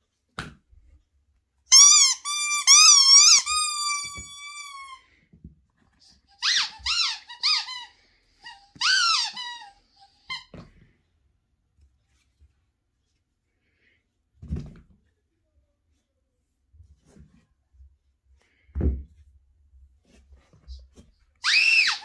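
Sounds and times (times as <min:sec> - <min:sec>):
rubber chicken toy squawking: 0:01.7 - 0:05.0, 0:06.4 - 0:10.5, 0:21.4 - 0:22.0
squeaky rubber ball: 0:01.7 - 0:05.0, 0:06.4 - 0:10.7.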